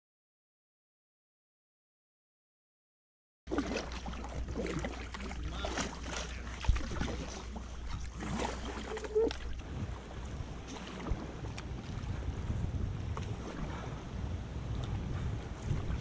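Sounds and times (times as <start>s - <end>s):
water splashing and sloshing: 3.5s - 16.0s
wind rumble on microphone: 4.2s - 16.0s.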